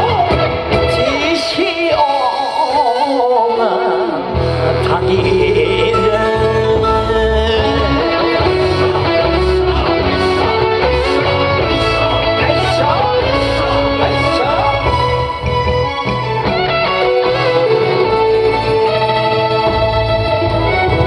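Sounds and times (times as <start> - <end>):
band with bass and guitar: 0.0 - 21.0
solo voice singing ornamented line: 1.0 - 9.8.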